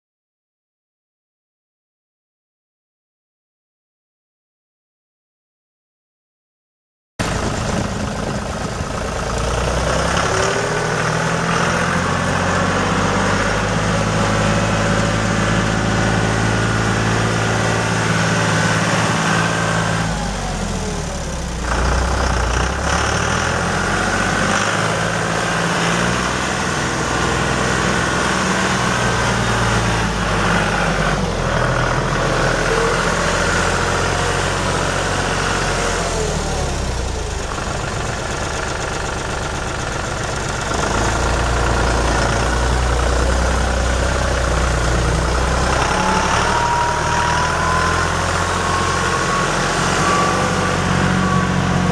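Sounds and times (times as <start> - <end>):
tractor diesel engine running: 7.2 - 51.9.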